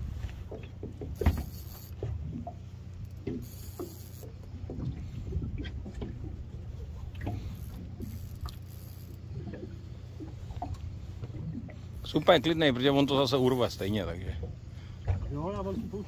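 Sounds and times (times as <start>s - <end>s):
low hum: 0.0s - 16.0s
water splashing against hull: 0.0s - 16.0s.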